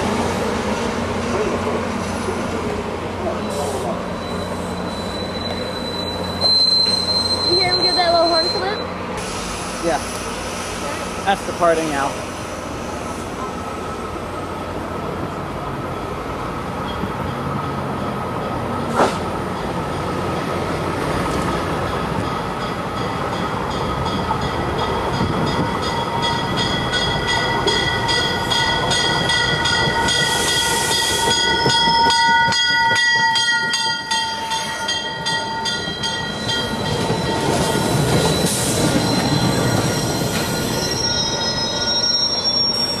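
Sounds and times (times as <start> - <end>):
train coaches rumbling: 0.0 - 43.0
brakes and wheels squealing: 1.4 - 14.1, 34.1 - 43.0.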